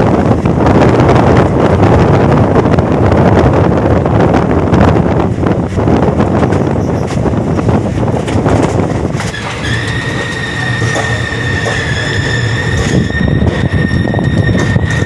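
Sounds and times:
train rumbling on track: 0:00.0 - 0:15.0
high-pitched brake squeal: 0:09.3 - 0:15.0.

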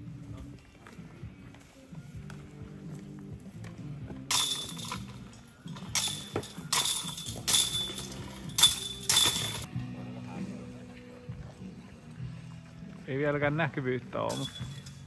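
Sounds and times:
quiet background music: 0:00.0 - 0:15.0
metallic clinking and jingling: 0:04.3 - 0:09.7, 0:14.3 - 0:15.0.

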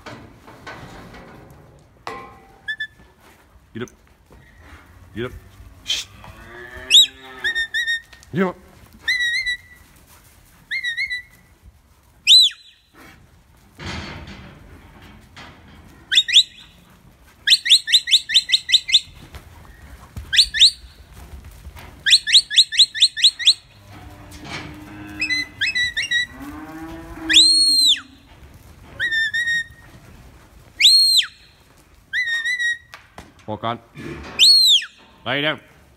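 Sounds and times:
cattle mooing: 0:05.5 - 0:07.8, 0:23.7 - 0:28.3
herding whistle: 0:06.8 - 0:08.0, 0:10.7 - 0:11.4, 0:12.2 - 0:12.9, 0:16.1 - 0:16.8, 0:17.4 - 0:19.3, 0:20.2 - 0:21.0, 0:22.0 - 0:23.8, 0:27.2 - 0:28.1, 0:29.0 - 0:29.8, 0:30.8 - 0:32.9, 0:34.4 - 0:35.0.

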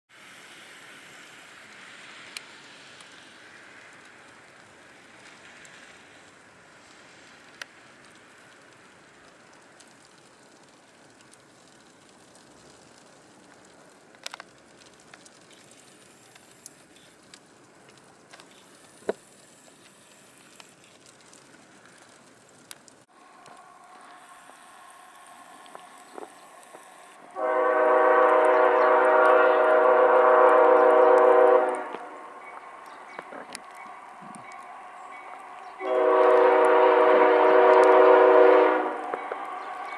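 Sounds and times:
small clicks: 0:07.4 - 0:27.4
locomotive air horn blast: 0:27.3 - 0:32.3, 0:35.8 - 0:39.1.

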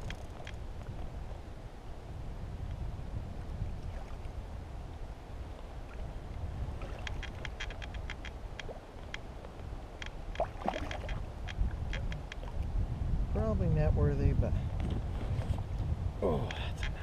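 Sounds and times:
wind and water rumble: 0:00.0 - 0:17.0
splash: 0:10.4 - 0:11.2.

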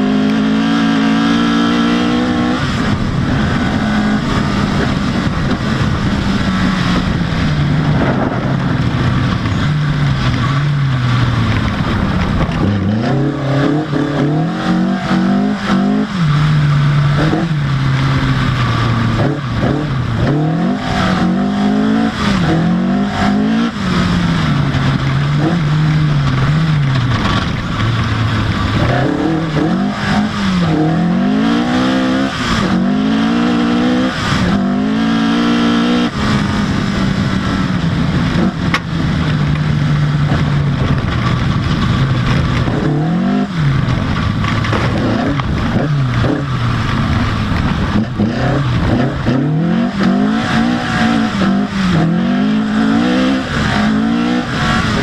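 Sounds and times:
rally car engine revving hard: 0:00.0 - 0:55.0.

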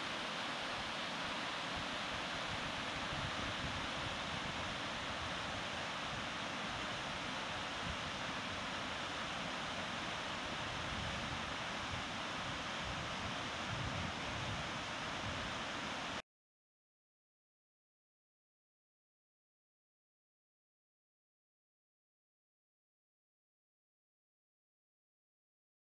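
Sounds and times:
waterfall rushing: 0:00.0 - 0:16.2.

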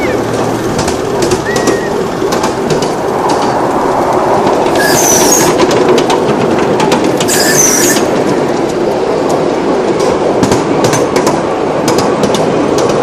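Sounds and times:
wheel flanges squealing: 0:00.0 - 0:06.3, 0:07.1 - 0:08.2
train wheels rumbling: 0:00.0 - 0:13.0
clicks over rail joints: 0:00.2 - 0:13.0.

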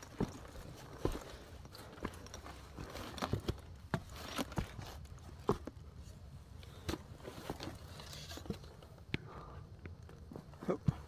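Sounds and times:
footsteps on trail: 0:00.0 - 0:05.8.

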